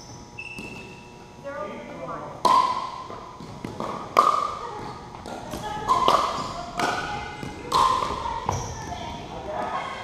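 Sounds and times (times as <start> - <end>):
paddles hitting plastic ball: 2.4 - 8.6.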